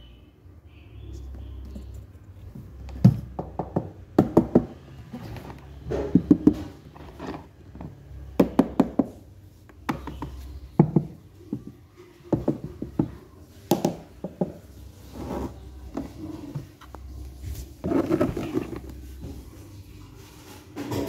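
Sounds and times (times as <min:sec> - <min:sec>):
knocks on hollow plastic: 0:03.0 - 0:04.8, 0:08.4 - 0:09.2.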